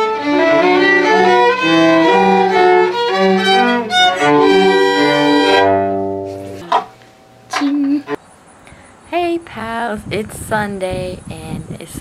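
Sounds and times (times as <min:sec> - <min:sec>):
violin duet: 0:00.0 - 0:06.9.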